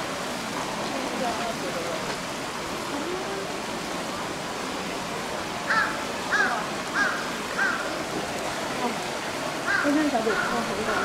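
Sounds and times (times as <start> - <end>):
crow cawing: 5.7 - 7.9, 9.7 - 11.0.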